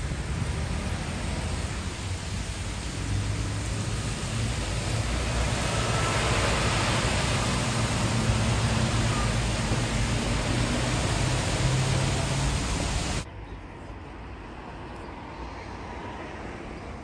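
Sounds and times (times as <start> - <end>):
heavy rain on pavement: 0.0 - 13.2
low rumble of road traffic: 0.0 - 17.0.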